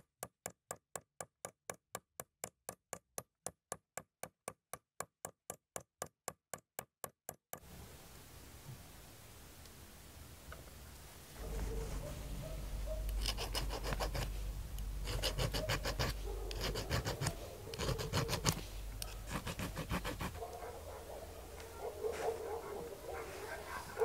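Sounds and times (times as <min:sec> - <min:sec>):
steady low hum: 0:09.6 - 0:24.0
file rasping on metal: 0:13.1 - 0:14.4, 0:15.0 - 0:20.5.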